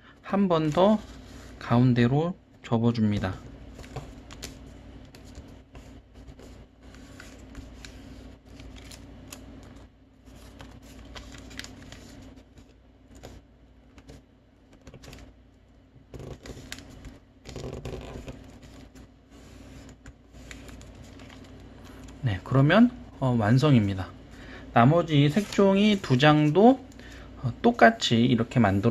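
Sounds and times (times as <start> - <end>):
paper folding and crinkling: 0.5 - 1.6, 3.2 - 15.3, 16.1 - 22.4, 23.7 - 27.2.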